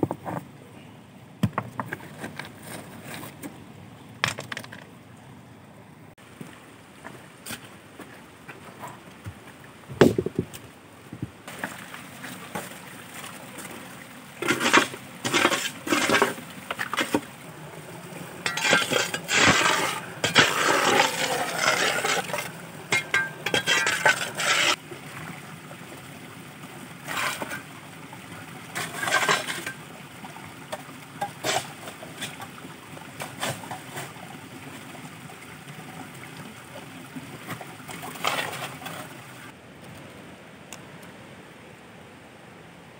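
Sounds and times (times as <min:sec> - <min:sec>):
hard objects clinking and scraping: 0:18.4 - 0:24.8.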